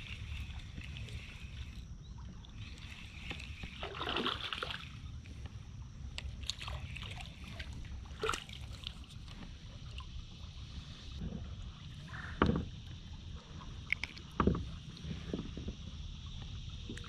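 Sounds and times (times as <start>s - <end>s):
water sloshing around kayak hull: 0.0s - 17.0s
loud splash: 3.8s - 4.9s.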